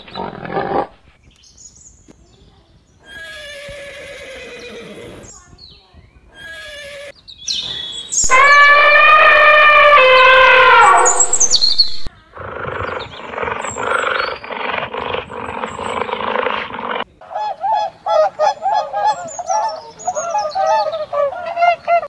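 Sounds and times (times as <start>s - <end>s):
leopard rasping call: 8.2s - 21.8s
elephant trumpeting: 8.3s - 11.8s.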